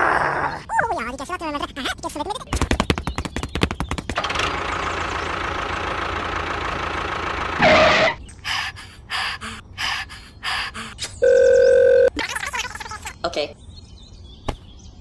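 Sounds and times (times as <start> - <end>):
small tractor engine running: 4.1 - 8.1.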